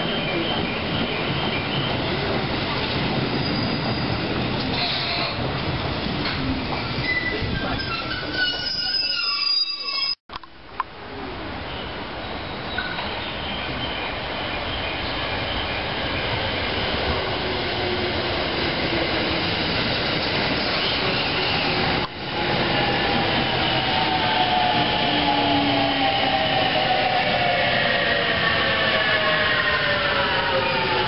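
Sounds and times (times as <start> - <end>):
train running on rails: 11.0 - 31.0.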